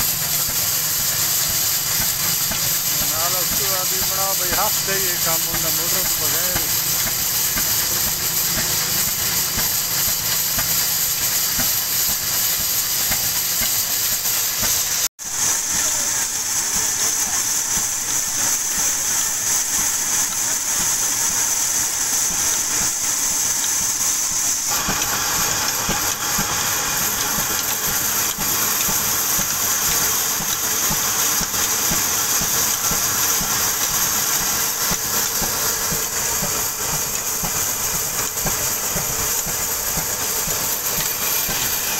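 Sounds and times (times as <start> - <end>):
saw blade cutting log: 0.0 - 12.2
diesel engine running: 0.0 - 14.3, 15.9 - 41.9.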